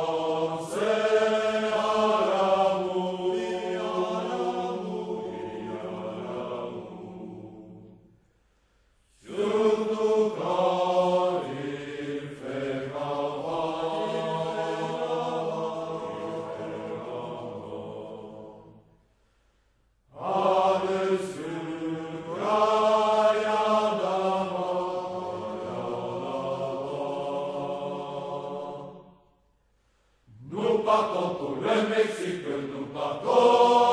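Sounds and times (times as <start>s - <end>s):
men singing unaccompanied: 0.0s - 7.6s, 30.4s - 33.9s.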